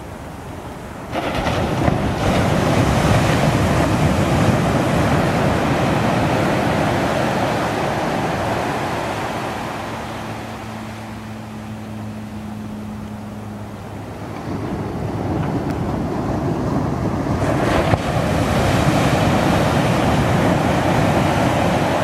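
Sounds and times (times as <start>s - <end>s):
surf breaking on shore: 0.0s - 22.0s
foam rushing up beach: 1.1s - 11.1s, 14.5s - 22.0s.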